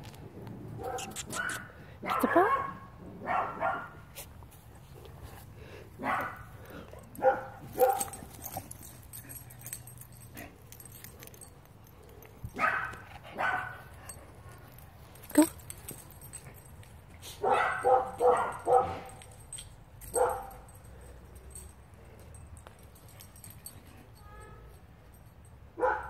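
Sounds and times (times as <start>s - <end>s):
dog barking: 0.8s - 4.1s, 6.0s - 6.4s, 7.2s - 8.1s, 12.6s - 13.8s, 17.4s - 19.2s, 20.1s - 20.6s, 25.8s - 26.0s.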